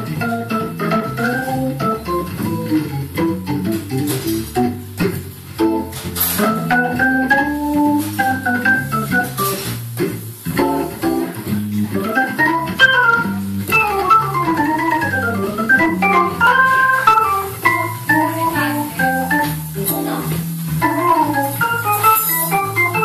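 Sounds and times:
hammond organ playing: 0.0s - 23.0s.

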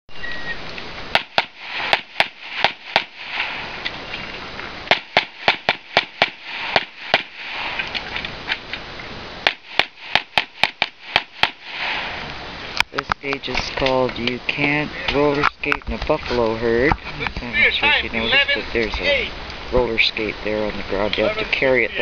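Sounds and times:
rapid gunshots: 1.1s - 3.8s, 4.9s - 7.9s, 9.4s - 12.3s.

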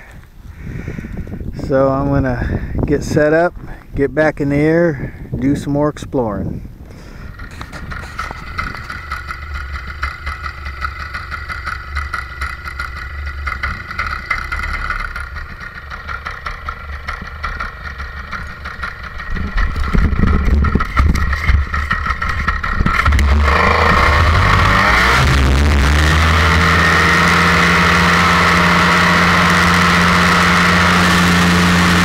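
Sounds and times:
paramotor engine running: 6.9s - 32.0s.

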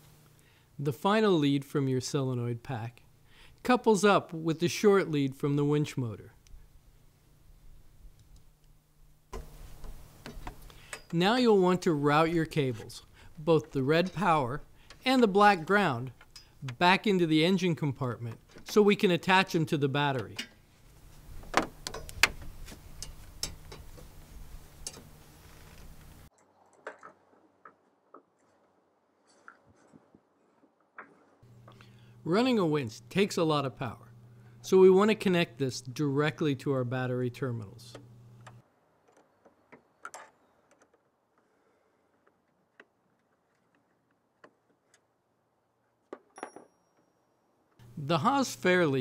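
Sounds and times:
cable clicking and knocking: 9.3s - 11.2s, 21.4s - 24.1s, 37.9s - 41.4s
wrench clicking on metal bolts: 14.8s - 16.8s, 23.0s - 24.1s
low steady hum: 31.4s - 38.6s, 47.8s - 49.0s.

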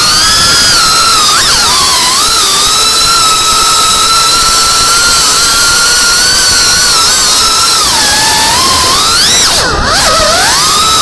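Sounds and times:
quadcopter motors whining: 0.0s - 11.0s.

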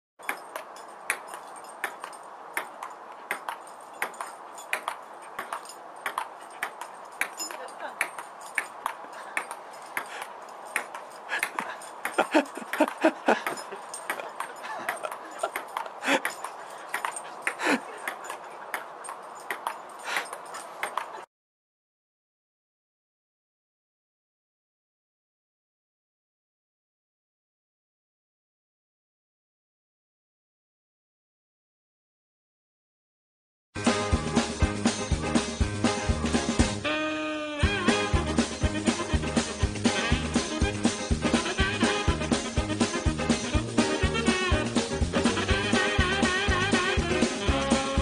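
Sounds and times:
ping-pong ball bouncing: 0.3s - 10.2s, 10.8s - 17.1s
dog vocalizing: 11.2s - 21.2s.

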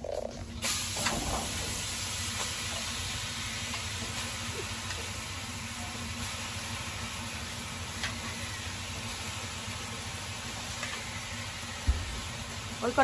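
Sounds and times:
greens sizzling in a hot wok: 0.6s - 13.0s.

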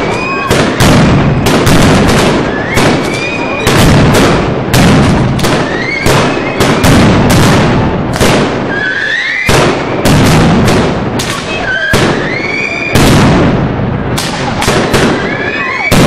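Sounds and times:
rising firework whistles: 0.0s - 4.4s, 5.2s - 7.3s, 8.1s - 10.4s, 11.2s - 13.4s, 14.2s - 16.0s
fireworks bangs: 0.0s - 16.0s.

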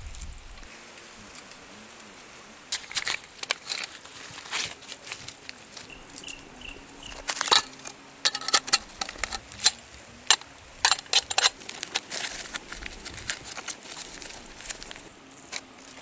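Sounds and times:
clicks and knocks of metal table legs: 7.2s - 12.1s.

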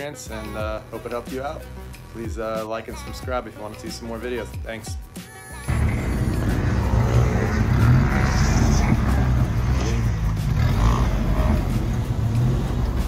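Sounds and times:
engine low rumble: 5.7s - 13.0s.

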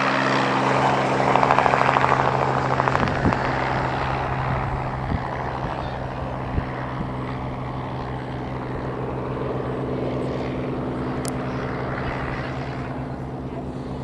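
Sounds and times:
propeller plane engine droning: 0.0s - 14.0s.

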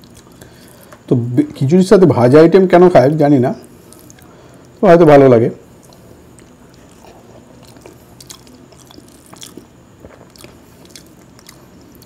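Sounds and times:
chewing with wet smacks: 5.8s - 12.0s.

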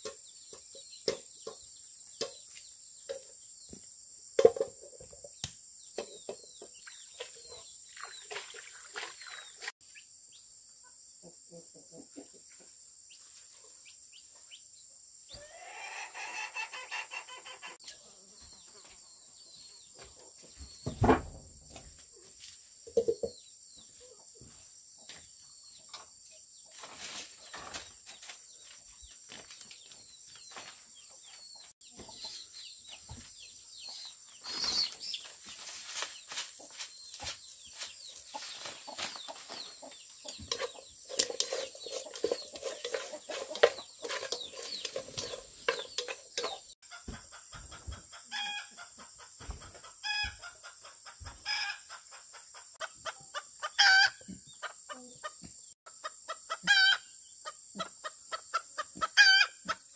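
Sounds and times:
chicken calling: 15.3s - 17.8s, 53.7s - 54.2s, 56.3s - 57.0s, 59.0s - 59.8s.

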